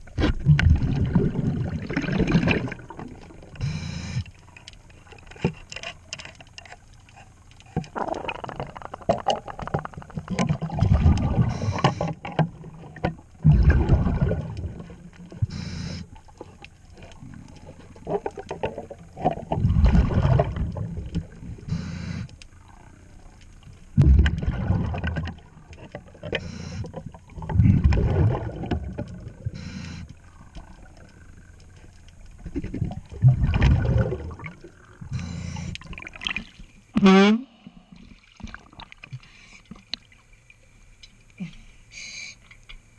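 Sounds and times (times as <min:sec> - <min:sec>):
exhaled bubbles underwater: 0:00.0 - 0:03.6, 0:07.8 - 0:15.6, 0:16.2 - 0:21.8, 0:22.5 - 0:36.8
faint inhalation hiss: 0:21.6 - 0:23.1, 0:39.1 - 0:40.0, 0:40.7 - 0:42.9.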